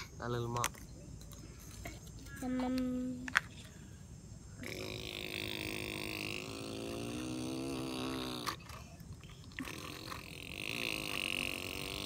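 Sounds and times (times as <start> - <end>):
person imitating engine noise: 4.6 - 8.8, 9.4 - 12.0.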